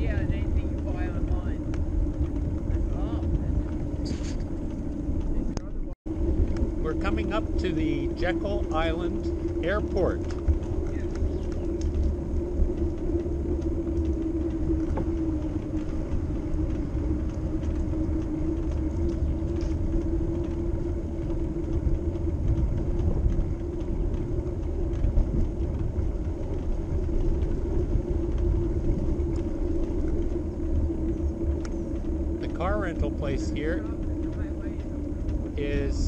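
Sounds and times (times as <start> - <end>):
bicycle tyres rolling: 0.0 - 36.0
steady hum: 0.0 - 36.0
wind on microphone: 0.0 - 36.0.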